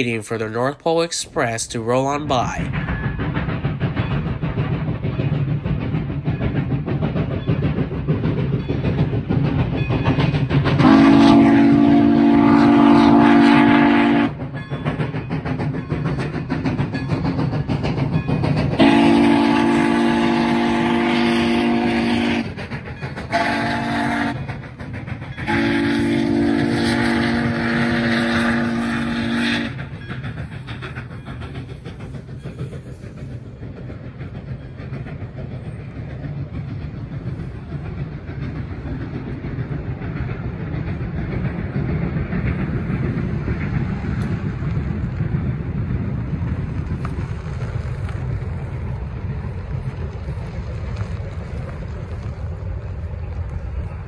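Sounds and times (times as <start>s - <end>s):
passing train rumble: 0.0s - 54.0s
steam locomotive whistle: 10.8s - 14.4s, 18.8s - 22.5s, 23.3s - 24.4s, 25.4s - 29.8s.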